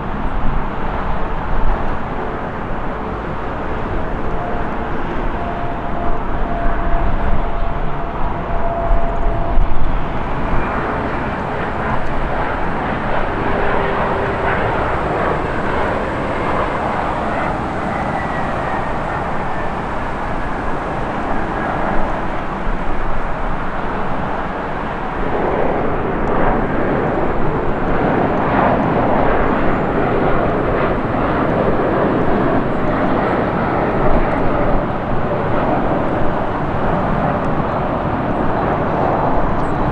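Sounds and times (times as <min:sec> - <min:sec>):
jet engines roaring with whine: 0:00.0 - 0:39.9.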